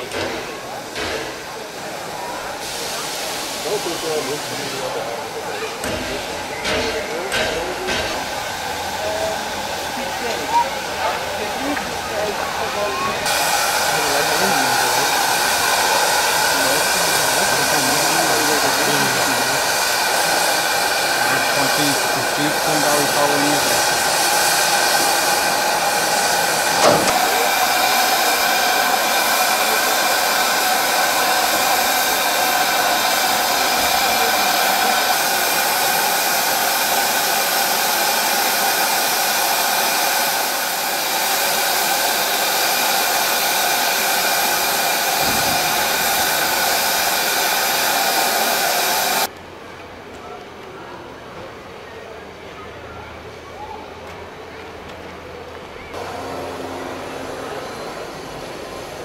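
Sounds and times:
steam hissing from locomotive: 0.0 - 49.3.

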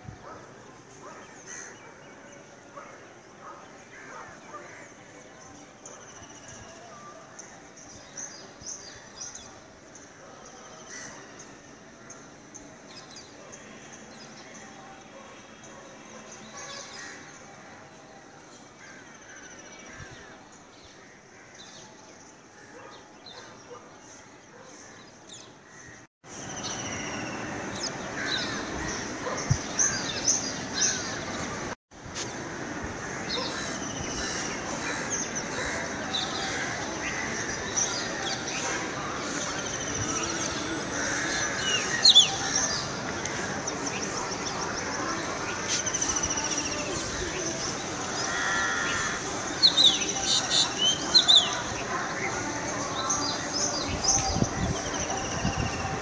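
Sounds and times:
birds chirping: 33.2 - 56.0.

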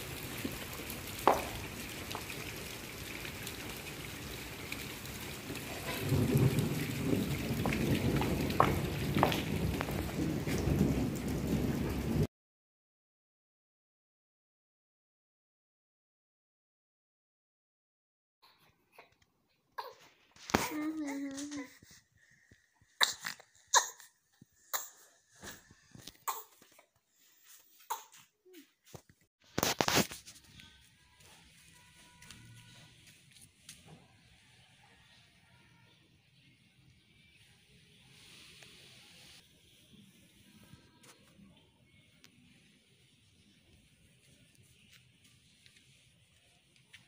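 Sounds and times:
drips splashing: 0.0 - 11.5
rain on concrete: 0.0 - 12.3, 29.5 - 34.0, 38.1 - 40.4, 42.2 - 47.0.

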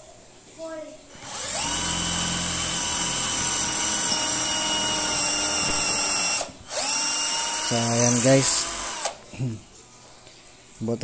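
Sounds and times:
cordless drill boring into wood: 1.2 - 9.2.

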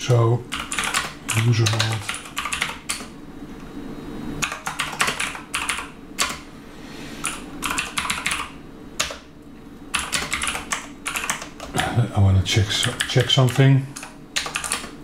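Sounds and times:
keyboard typing clicks: 0.5 - 3.1, 4.4 - 6.4, 7.2 - 9.2, 9.9 - 11.9, 12.8 - 15.0.

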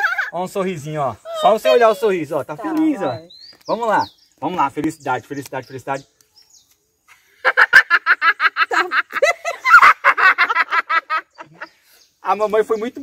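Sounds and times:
woman and girl laughing: 0.0 - 0.4, 7.3 - 11.7.

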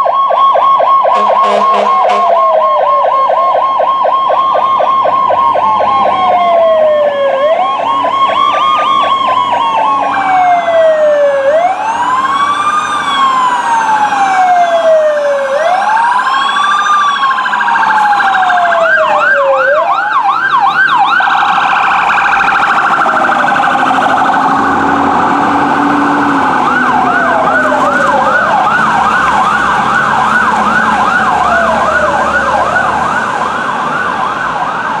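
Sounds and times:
electronic siren wailing and yelping: 0.0 - 35.0
steady high siren tone: 0.0 - 35.0.

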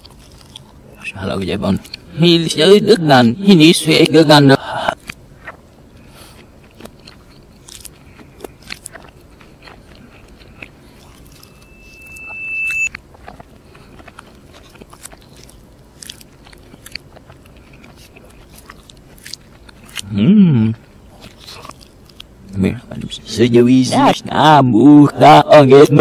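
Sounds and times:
chewing crispy chicken: 0.0 - 2.6, 3.5 - 23.3
steady high tone: 11.2 - 13.0.

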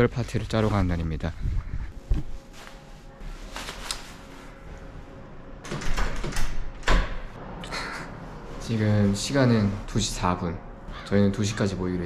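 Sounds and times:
faint handling sounds: 0.1 - 5.1.

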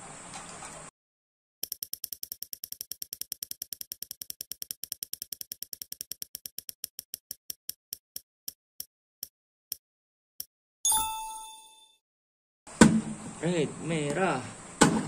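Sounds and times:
prize wheel ticking: 1.6 - 7.7.

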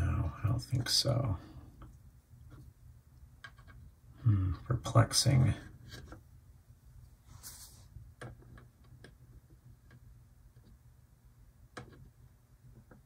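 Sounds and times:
soft hiss: 0.0 - 8.4
low steady hum: 0.0 - 13.0.

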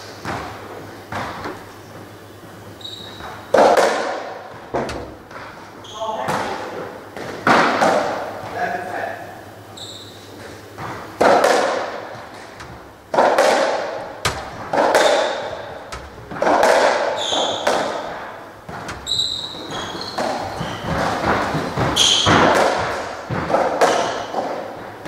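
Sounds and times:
shoes squeaking on wooden floor: 1.0 - 3.6, 4.3 - 6.9, 9.7 - 11.1, 14.2 - 24.4
racket hitting ball: 3.1 - 5.6, 6.2 - 8.4, 10.8 - 25.0
ball smacking off walls: 3.2 - 5.6, 6.2 - 8.6, 10.8 - 25.0.

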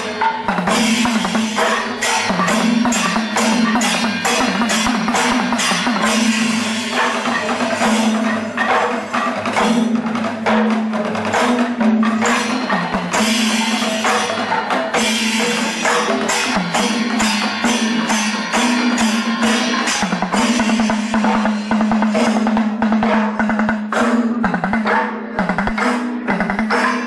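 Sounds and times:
hand cymbals clashing: 0.0 - 27.0
rapid drum strokes: 0.0 - 27.0.

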